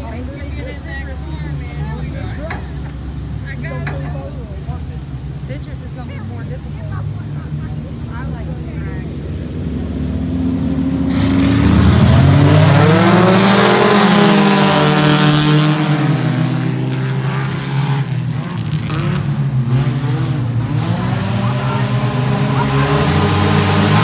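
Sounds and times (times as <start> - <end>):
stock car engines running hard: 0.0 - 24.0
race car engine passing by: 5.0 - 24.0.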